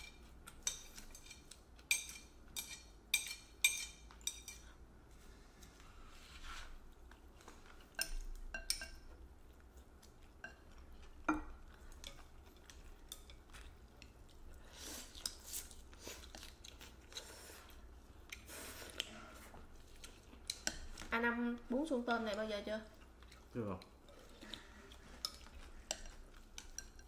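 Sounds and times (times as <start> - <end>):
chewing: 6.7 - 27.0
utensils clinking against bowls: 7.9 - 9.1.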